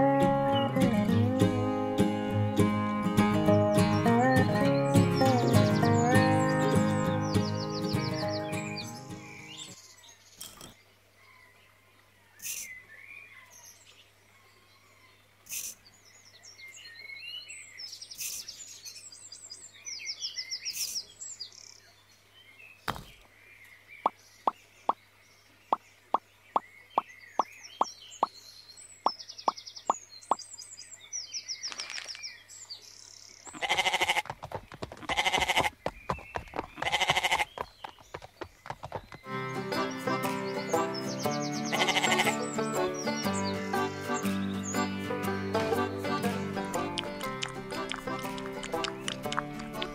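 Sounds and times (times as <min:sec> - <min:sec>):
birdsong chirps: 0:02.9 - 0:49.9
sheep bleating: 0:33.6 - 0:34.3, 0:35.0 - 0:35.8, 0:36.8 - 0:37.5, 0:41.7 - 0:42.5
sharp clicks: 0:46.8 - 0:49.9.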